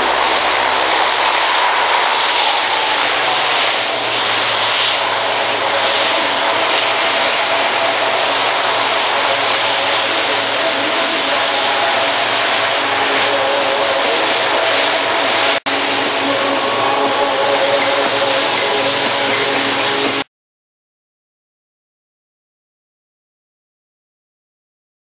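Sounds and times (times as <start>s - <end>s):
propeller noise with high whine: 0.0s - 20.3s
turboprop engines running loud: 0.0s - 20.3s.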